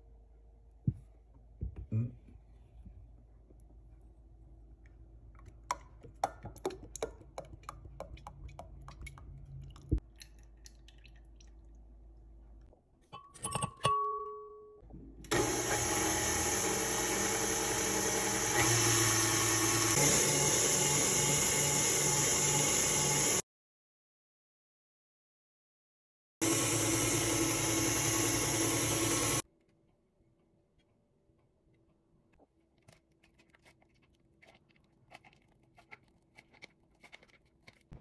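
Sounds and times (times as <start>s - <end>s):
stand mixer motor whirring: 15.3s - 23.4s, 26.4s - 29.4s.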